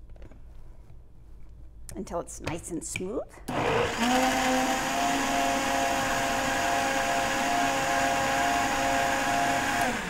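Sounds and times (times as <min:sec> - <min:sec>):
blender motor running: 0:03.5 - 0:10.0.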